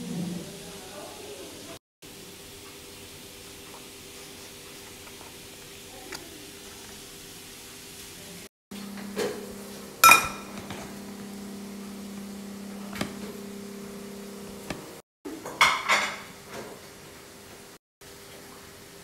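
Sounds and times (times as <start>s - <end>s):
metal spoon clinking on ceramic plate: 10.0s - 10.5s.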